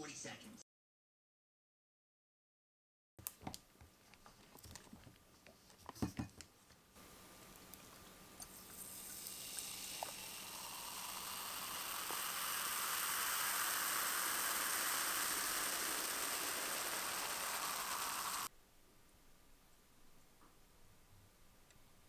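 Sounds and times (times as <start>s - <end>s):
cola fizzing in a glass: 8.6s - 15.3s.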